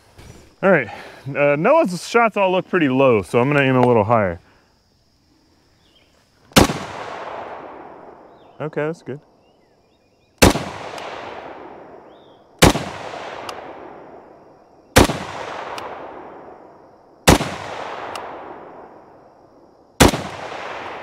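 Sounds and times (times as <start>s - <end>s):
rifle shots with echo: 6.6s - 8.4s, 10.4s - 19.2s, 20.0s - 21.0s.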